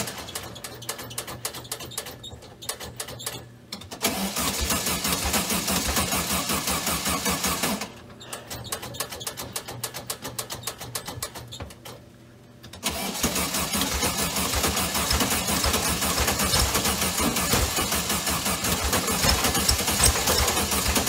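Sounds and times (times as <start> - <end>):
car engine cranking: 12.8 - 21.0.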